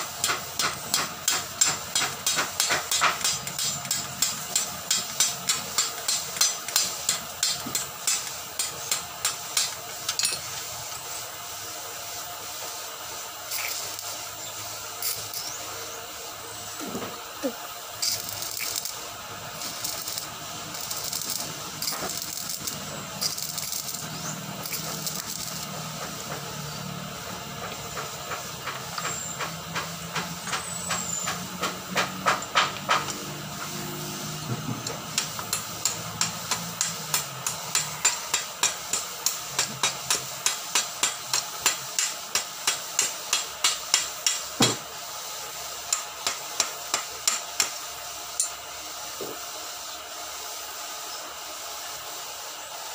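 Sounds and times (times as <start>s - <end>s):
arc welding crackling hiss: 0.0s - 52.9s
chipping hammer tapping metal: 0.2s - 10.4s, 19.6s - 26.4s, 34.8s - 44.8s.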